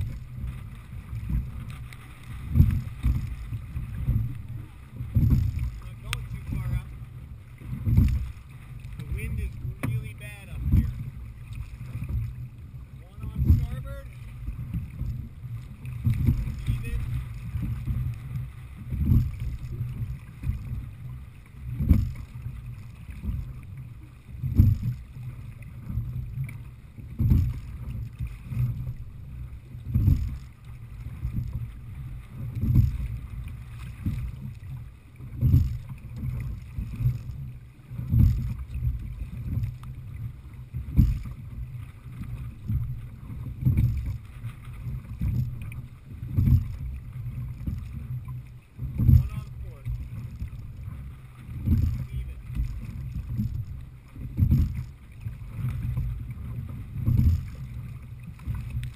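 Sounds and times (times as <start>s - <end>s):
choppy water against hull: 0.0s - 58.9s
wind rumble: 0.0s - 58.9s
oars and seat knocking: 2.4s - 4.4s, 5.0s - 6.9s, 7.6s - 12.4s, 13.1s - 15.3s, 16.0s - 20.8s, 21.7s - 22.3s, 27.1s - 27.6s, 32.4s - 33.1s, 35.3s - 39.9s, 43.6s - 44.3s, 46.3s - 48.0s, 48.8s - 50.7s, 51.5s - 56.1s.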